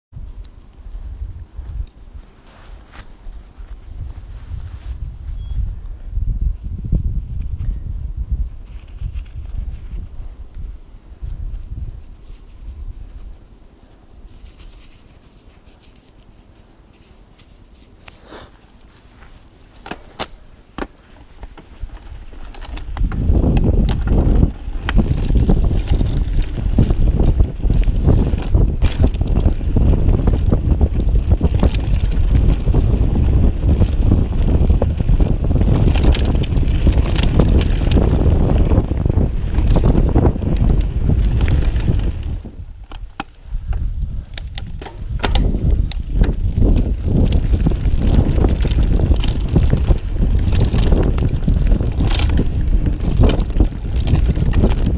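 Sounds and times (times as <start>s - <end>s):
wind buffeting microphone: 0.1s - 14.7s, 20.3s - 54.9s
bike knocking and rattling: 18.8s - 54.9s
tyres rumbling over dirt: 20.7s - 43.1s, 44.4s - 54.9s.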